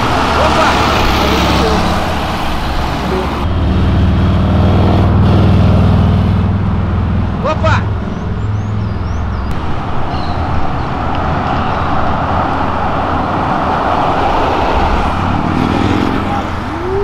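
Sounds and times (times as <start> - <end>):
low engine hum: 0.0 - 17.0.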